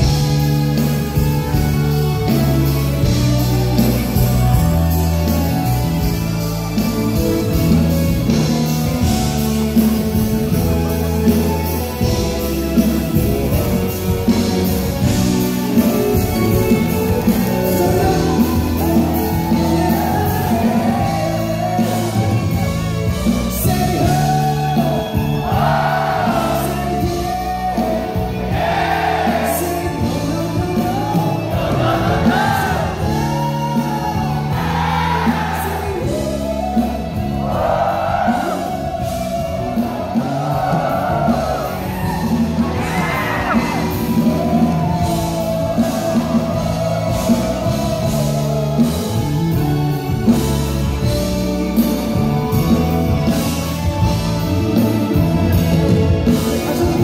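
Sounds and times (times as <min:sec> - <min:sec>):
live band playing: 0:00.0 - 0:57.0
man singing a ballad: 0:23.3 - 0:25.2, 0:29.3 - 0:37.1.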